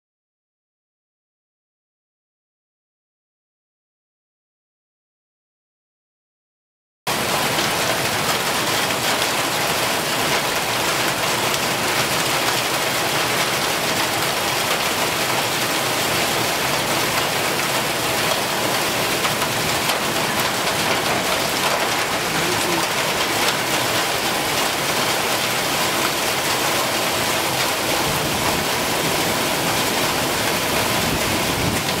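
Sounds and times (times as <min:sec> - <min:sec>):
hail and heavy rain on pavement: 0:07.1 - 0:32.0.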